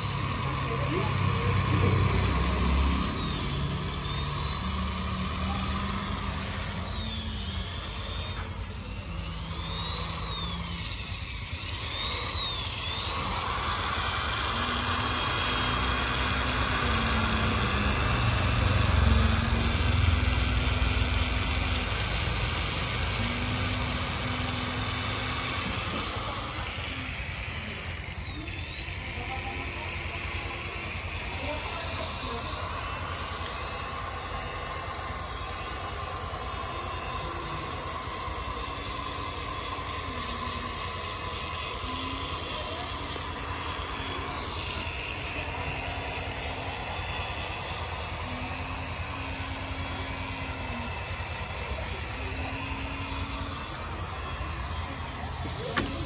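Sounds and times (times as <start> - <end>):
electric drill motor whine: 0.0 - 56.0.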